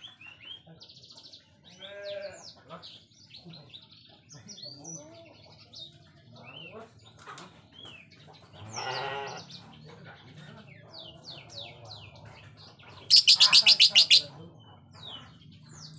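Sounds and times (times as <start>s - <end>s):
bird chirping: 11.0s - 15.9s
harsh rasping bird call: 13.1s - 14.3s.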